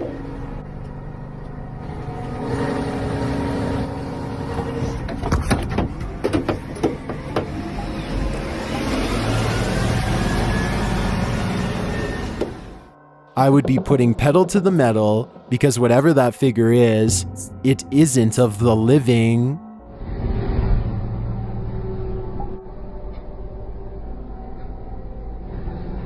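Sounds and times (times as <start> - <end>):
faint rising whine: 0.0 - 5.1, 7.6 - 13.1
truck engine rumbling: 0.0 - 19.5
sharp clicks and knocks: 5.1 - 7.6.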